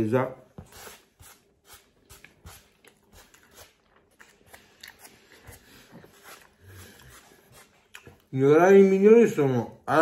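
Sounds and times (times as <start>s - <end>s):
chewing with wet mouth clicks: 2.2s - 8.3s.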